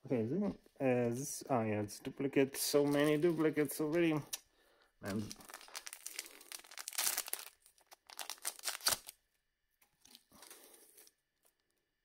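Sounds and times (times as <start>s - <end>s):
wrapper tearing and crinkling: 5.0s - 9.2s.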